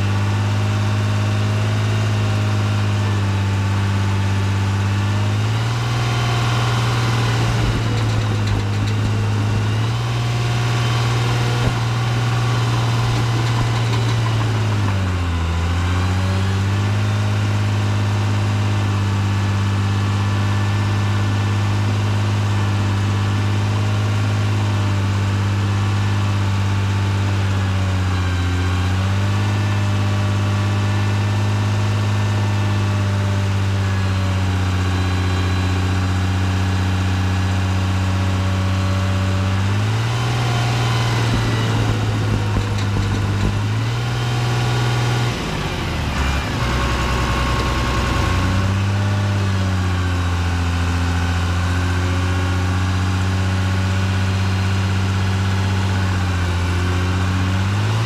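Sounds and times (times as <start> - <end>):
diesel dozer engine running: 0.0 - 58.0.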